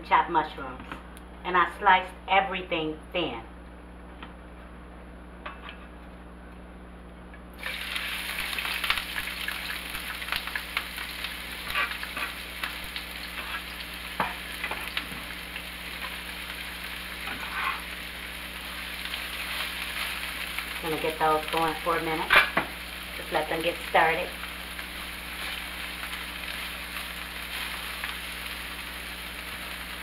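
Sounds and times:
onions sizzling in oil: 0:07.6 - 0:30.0.

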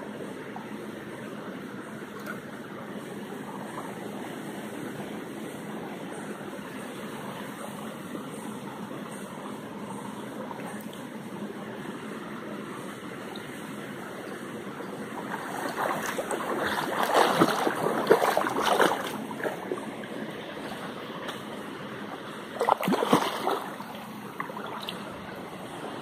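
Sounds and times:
stream running over rocks: 0:12.5 - 0:26.0
splashing in water: 0:15.2 - 0:19.8, 0:22.6 - 0:25.1.

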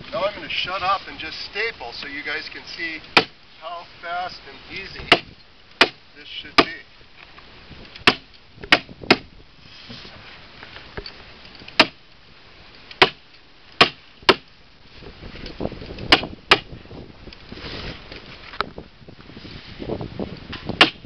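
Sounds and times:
staple hammer strikes: 0:05.1 - 0:06.0, 0:08.0 - 0:09.2, 0:11.8 - 0:12.0, 0:16.1 - 0:16.7.

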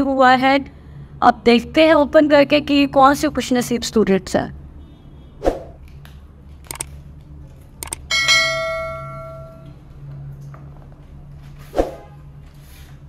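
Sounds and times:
mouse clicks: 0:06.7 - 0:06.9
notification bell ding: 0:08.1 - 0:09.7.

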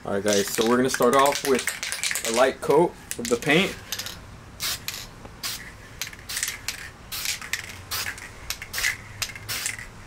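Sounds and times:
spray paint can hissing: 0:04.6 - 0:09.9.

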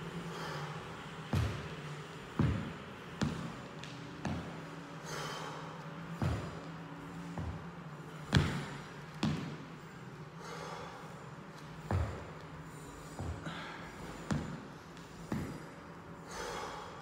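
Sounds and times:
steady low hum: 0:00.0 - 0:17.0
knees and sneakers thudding on mat: 0:01.3 - 0:01.7, 0:02.3 - 0:04.6, 0:06.1 - 0:09.6, 0:11.8 - 0:12.4, 0:14.2 - 0:14.6, 0:15.2 - 0:15.7.

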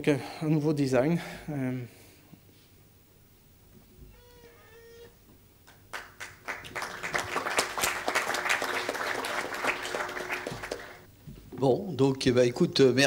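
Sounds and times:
audience applauding: 0:05.7 - 0:11.1.

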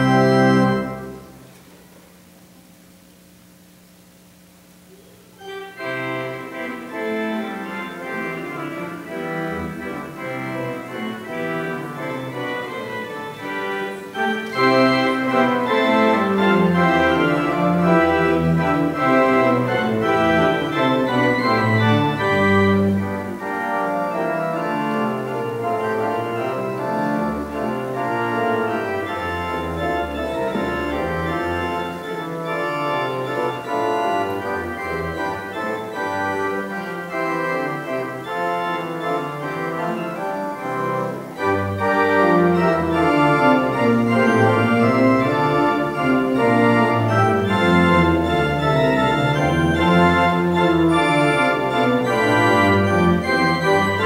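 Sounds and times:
church organ chords: 0:00.0 - 0:54.0.

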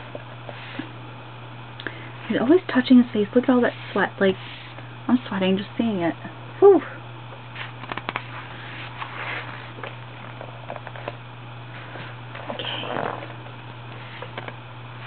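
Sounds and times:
steady low hum: 0:00.0 - 0:15.0
paper pages rustling: 0:07.6 - 0:11.2.

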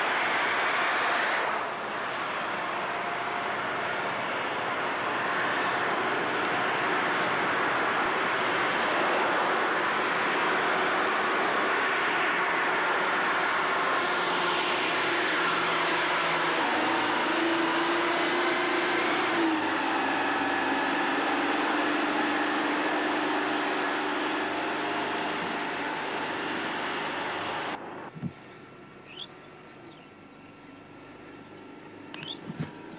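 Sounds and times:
large engine droning: 0:00.0 - 0:32.9.

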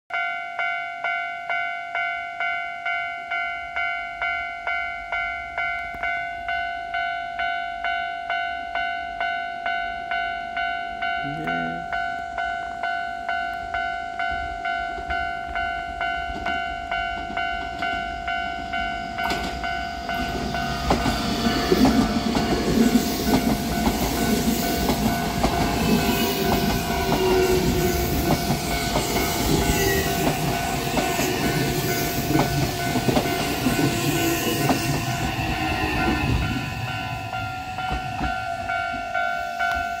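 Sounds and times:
level crossing bell ringing: 0:00.1 - 0:40.0
train wheels clattering on rails: 0:14.8 - 0:40.0.

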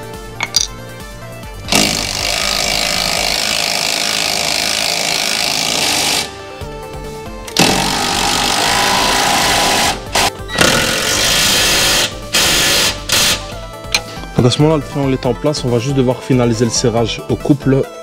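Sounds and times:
impact wrench hammering: 0:00.4 - 0:00.8, 0:01.7 - 0:06.3, 0:07.5 - 0:14.1.

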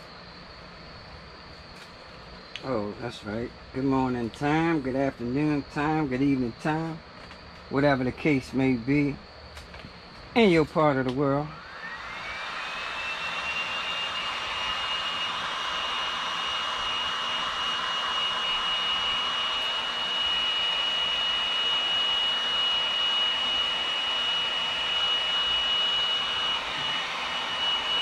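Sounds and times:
fan motor whine: 0:00.0 - 0:28.0
heat gun blowing air: 0:11.6 - 0:28.0.

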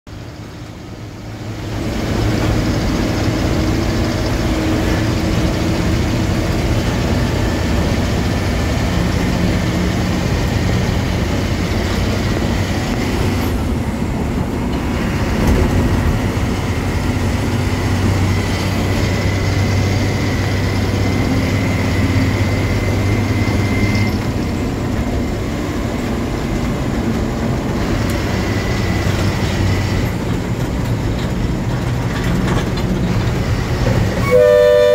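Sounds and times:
road rumble: 0:00.1 - 0:34.9
truck diesel engine drone: 0:00.1 - 0:34.9.

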